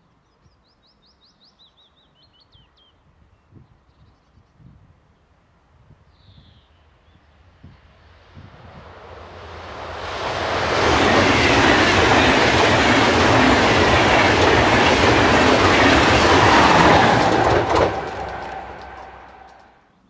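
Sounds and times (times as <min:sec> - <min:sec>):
train wheels rushing on rails: 0:07.6 - 0:19.8.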